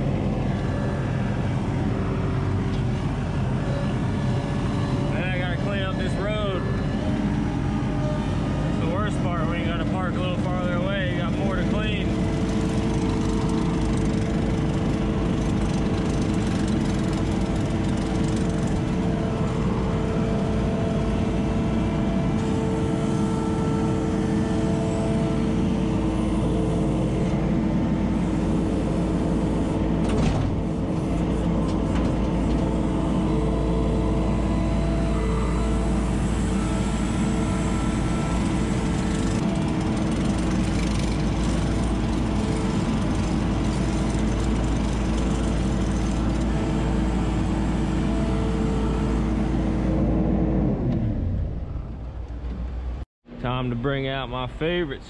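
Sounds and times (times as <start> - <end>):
diesel engine running: 0.0 - 55.0.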